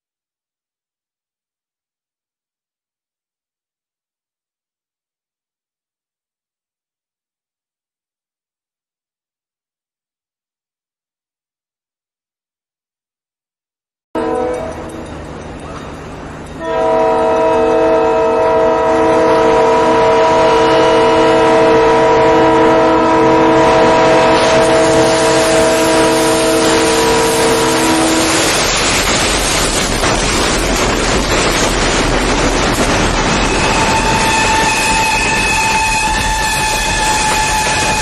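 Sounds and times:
locomotive air horn blast: 0:14.2 - 0:14.9, 0:16.6 - 0:28.6, 0:33.6 - 0:38.0
freight train rumbling past: 0:14.2 - 0:38.0.

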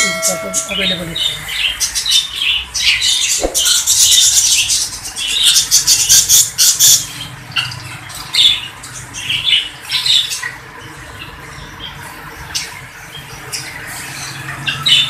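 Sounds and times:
caged birds chirping and squawking: 0:00.0 - 0:15.0.

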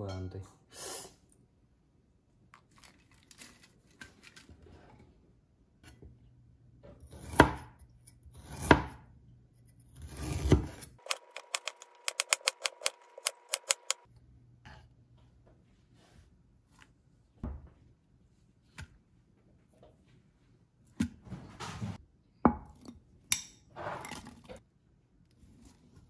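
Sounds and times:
knife chopping on wooden board: 0:07.1 - 0:07.8, 0:08.4 - 0:09.0, 0:10.0 - 0:14.1.

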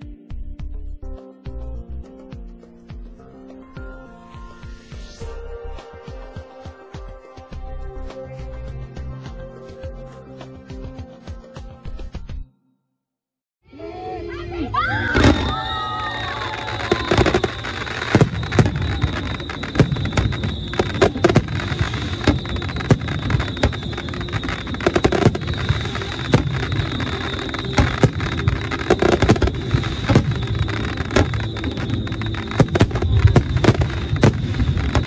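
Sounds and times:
fireworks booming and cracking: 0:15.2 - 0:35.0
steady high-pitched tone: 0:17.0 - 0:35.0.

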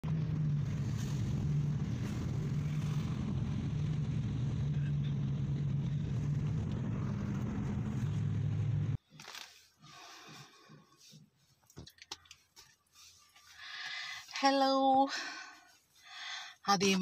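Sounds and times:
car engine drone: 0:00.0 - 0:09.0
road noise inside car: 0:00.0 - 0:09.4.

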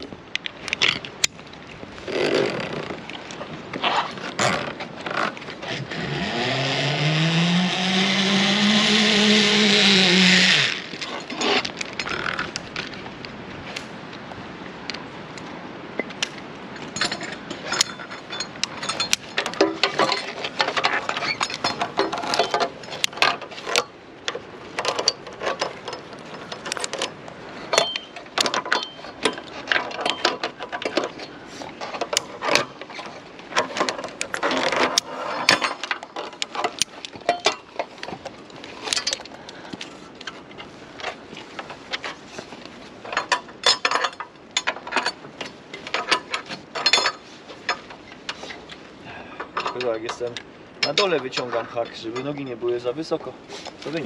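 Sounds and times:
metal gear clinking and scraping: 0:16.9 - 0:23.1.

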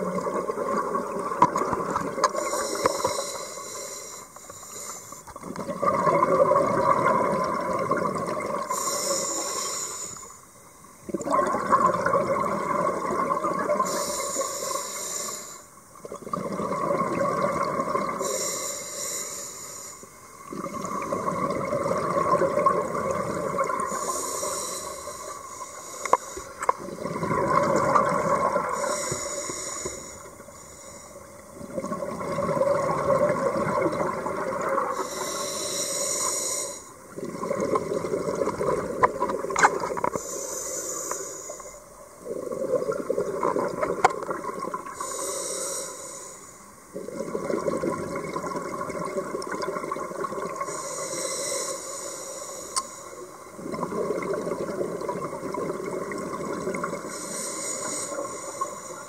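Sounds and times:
bubbling exhaled air: 0:00.0 - 0:10.3, 0:11.1 - 0:19.2, 0:20.5 - 0:46.3, 0:46.9 - 0:59.0
scuba regulator hissing inhale: 0:02.3 - 0:05.4, 0:08.7 - 0:10.6, 0:13.8 - 0:15.8, 0:18.1 - 0:20.4, 0:23.7 - 0:26.9, 0:28.6 - 0:31.4, 0:34.8 - 0:37.1, 0:40.0 - 0:42.0, 0:44.9 - 0:46.9, 0:50.6 - 0:53.6, 0:56.9 - 0:59.0.

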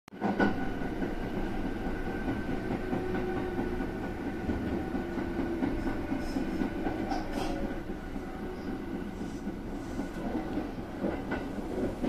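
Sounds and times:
train wheels rumbling: 0:00.2 - 0:12.0.

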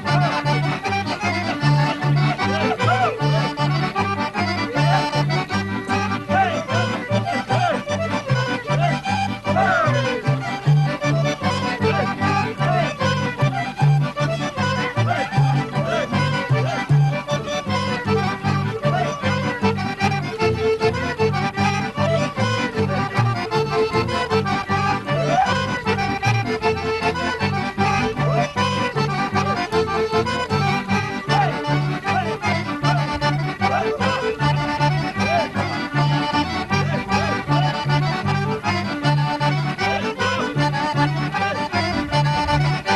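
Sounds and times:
accordion dance tune: 0:00.0 - 0:42.9.

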